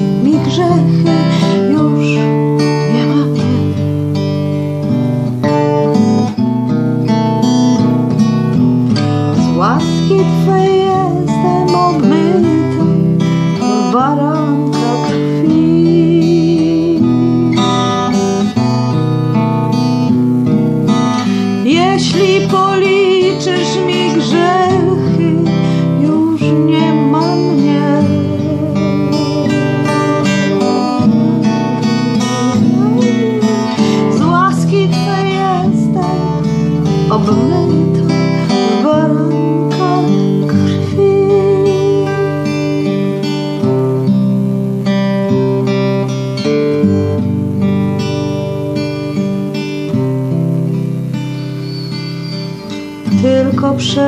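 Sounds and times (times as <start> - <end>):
wordless voice singing melody: 0.0 - 3.9, 9.4 - 18.4, 21.2 - 43.1, 53.1 - 54.0
acoustic guitar strumming chords: 0.0 - 54.0.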